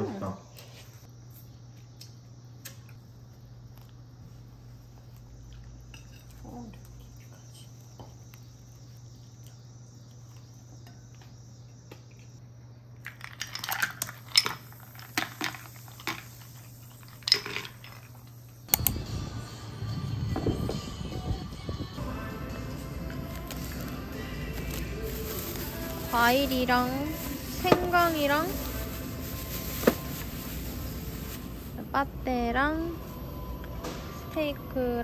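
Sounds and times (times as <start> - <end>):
faint steady hum: 0.0 - 35.0
crunching while eating: 1.7 - 10.6.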